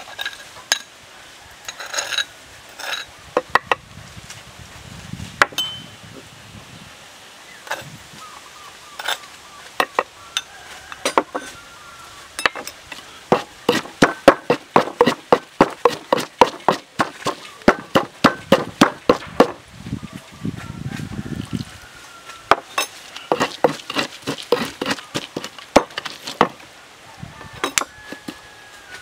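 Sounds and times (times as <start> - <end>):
wooden pestle pounding in mortar: 13.3 - 19.6, 23.3 - 26.6.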